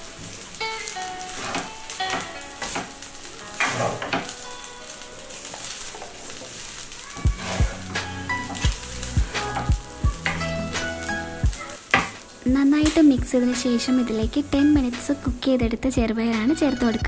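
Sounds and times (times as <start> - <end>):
food sizzling: 0.0 - 17.0
spatula scraping in a pan: 0.1 - 12.3.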